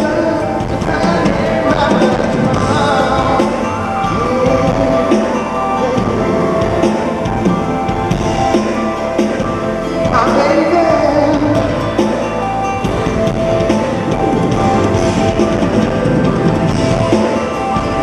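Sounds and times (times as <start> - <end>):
man singing live pop: 0.0 - 7.9, 10.0 - 11.8
backing track with drums: 0.0 - 18.0.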